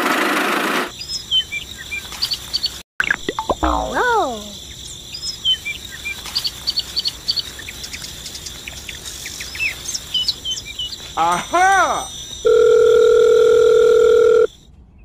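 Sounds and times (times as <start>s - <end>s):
small birds chirping: 0.9s - 12.5s
high insect drone: 3.6s - 14.5s.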